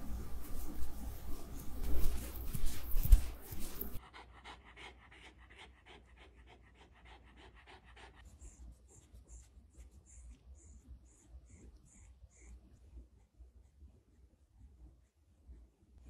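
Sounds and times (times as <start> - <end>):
rustling noise: 0.0 - 4.0
dog panting: 0.1 - 13.7.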